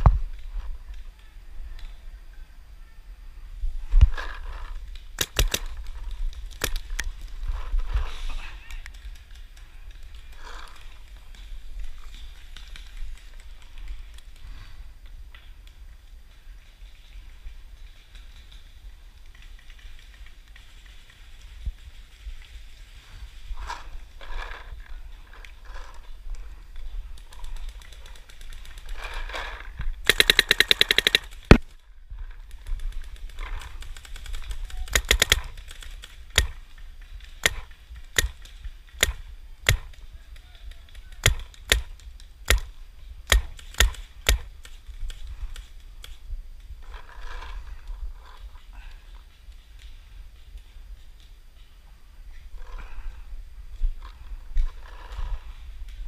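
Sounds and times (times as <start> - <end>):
paintball marker shots: 5.2 - 5.9, 30.1 - 31.7, 34.7 - 35.6, 36.3 - 36.7, 37.4 - 40.1, 41.2 - 44.8.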